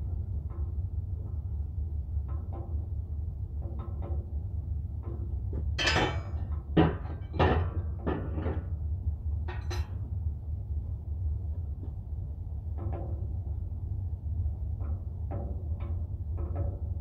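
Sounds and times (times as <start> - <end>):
steady low hum: 0.0 - 17.0
metal tools knocking and scraping: 5.8 - 8.6, 9.5 - 10.0.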